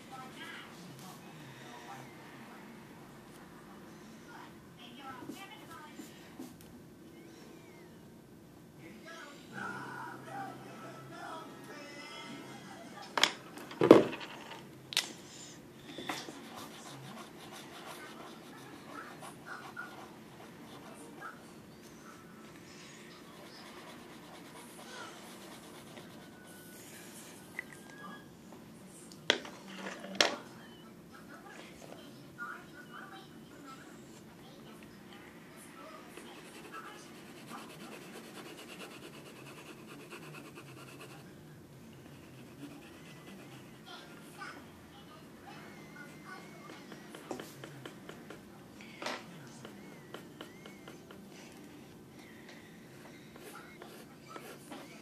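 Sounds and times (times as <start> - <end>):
pencil scratching on paper: 16.1 - 21.4, 23.2 - 26.7, 36.2 - 41.3, 42.0 - 44.2, 53.4 - 55.0.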